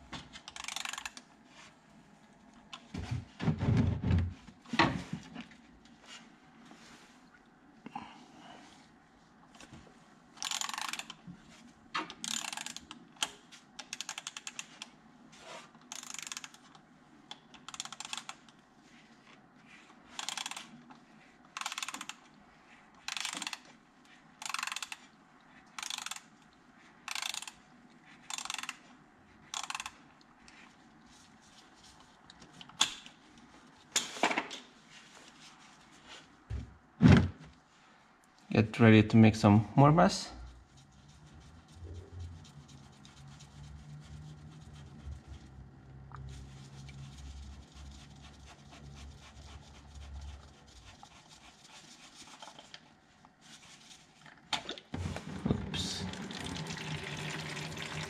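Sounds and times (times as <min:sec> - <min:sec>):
ratchet clicking: 0:00.6 - 0:01.2, 0:10.4 - 0:11.1, 0:12.2 - 0:12.8, 0:15.9 - 0:16.5, 0:20.2 - 0:20.7, 0:24.4 - 0:25.0, 0:25.8 - 0:26.2, 0:27.1 - 0:27.5, 0:28.3 - 0:28.8, 0:29.6 - 0:29.9.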